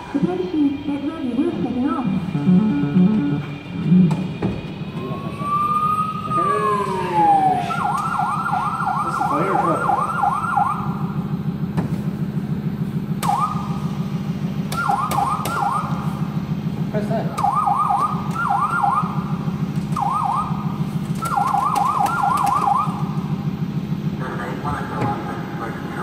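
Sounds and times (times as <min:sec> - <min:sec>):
low pulsing hum: 0:00.0 - 0:26.0
electronic siren wail and yelps: 0:01.2 - 0:04.1, 0:04.8 - 0:11.3, 0:13.2 - 0:13.9, 0:14.7 - 0:16.2, 0:17.4 - 0:23.2.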